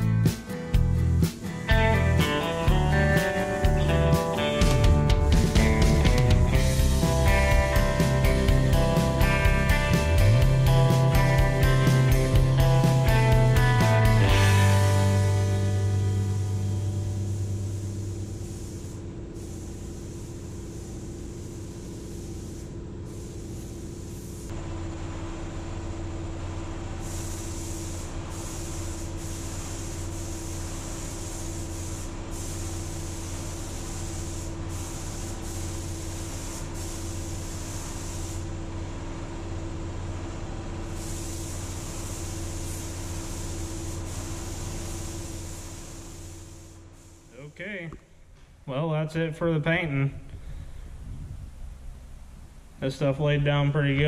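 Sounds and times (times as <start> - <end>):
air spray gun hissing: 0.0 - 24.6, 26.9 - 38.6, 40.8 - 47.5
steady mechanical hum: 0.0 - 54.0.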